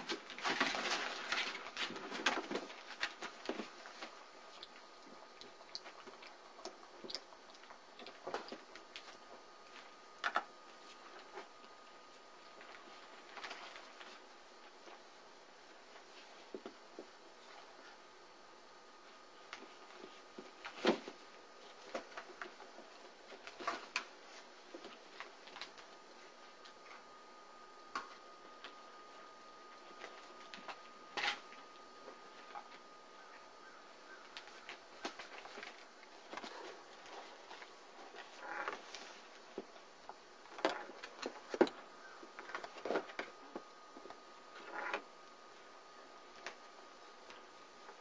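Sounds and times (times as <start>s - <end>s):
puppies clicking and scuffling: 0.0s - 11.8s
puppy paws tapping and scuffing: 0.0s - 15.1s, 34.2s - 44.2s.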